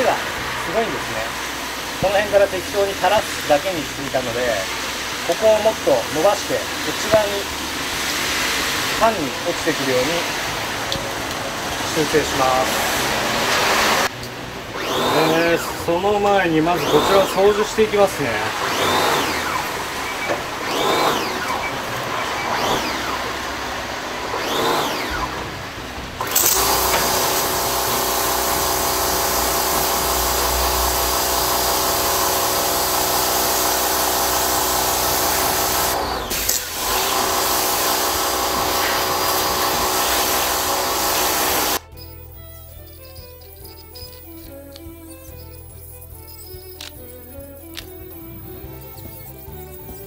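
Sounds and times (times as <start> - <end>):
water jet hissing on concrete: 0.0 - 14.2, 14.9 - 23.4, 26.2 - 41.8
pressure washer pump whine: 0.0 - 42.7.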